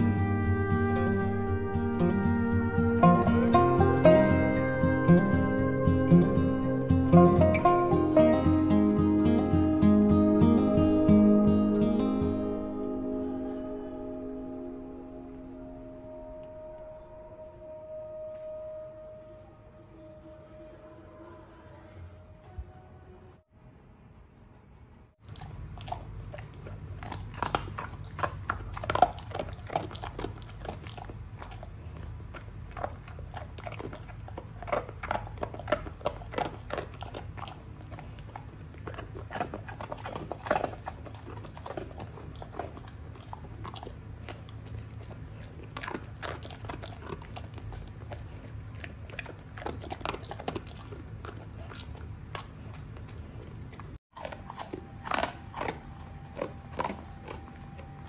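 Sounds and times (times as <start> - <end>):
steady low hum: 0.0 - 58.0
dog chewing and crunching food: 25.2 - 58.0.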